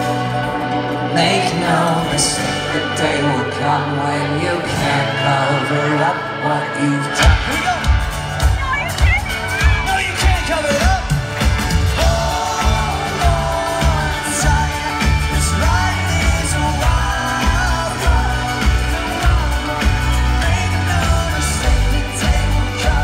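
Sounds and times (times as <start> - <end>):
pop-punk band playing: 0.0 - 23.0
person singing: 1.0 - 23.0
drum and bass beat: 7.2 - 23.0.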